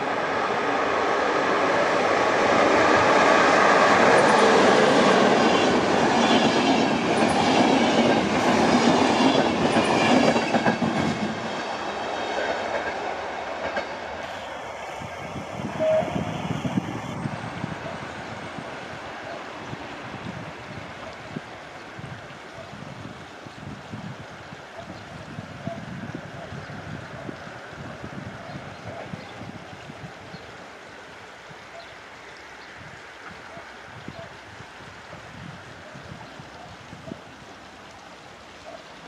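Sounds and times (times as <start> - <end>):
passenger train passing: 0.0 - 22.6.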